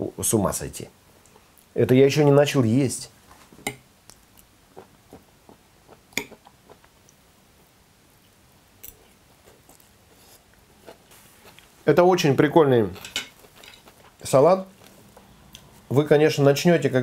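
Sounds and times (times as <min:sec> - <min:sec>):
quiet chewing: 0:04.1 - 0:07.2, 0:08.2 - 0:11.8, 0:12.9 - 0:15.8.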